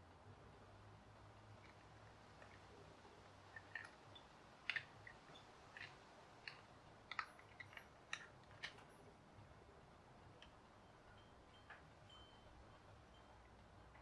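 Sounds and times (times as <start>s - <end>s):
plastic bricks clicking: 3.5s - 8.9s.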